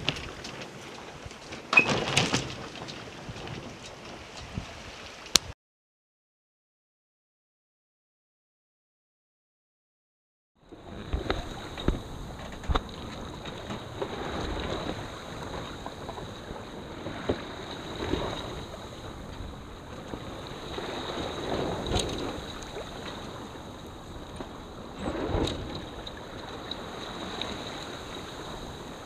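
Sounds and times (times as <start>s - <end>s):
water rushing along a hull: 0.0s - 5.5s, 10.6s - 29.0s
wind buffeting microphone: 10.6s - 29.0s.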